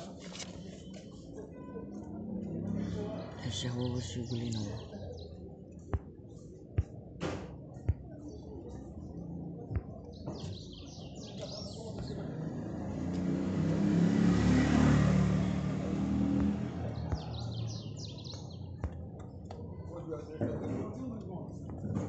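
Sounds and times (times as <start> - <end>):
vehicle passing by: 2.2 - 3.6, 12.1 - 18.1
birds chirping: 2.4 - 20.0.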